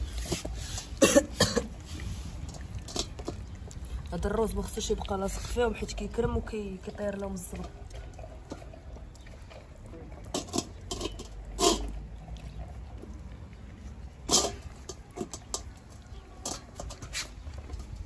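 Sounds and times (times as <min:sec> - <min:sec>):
puppies scuffing on tiled floor: 0:00.0 - 0:01.1, 0:14.3 - 0:18.0.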